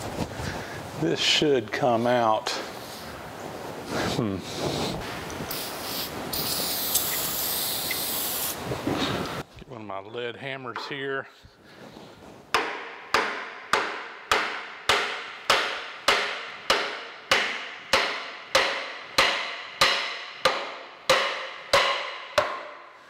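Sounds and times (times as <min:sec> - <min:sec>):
hammer striking iron bar: 0:12.6 - 0:23.0.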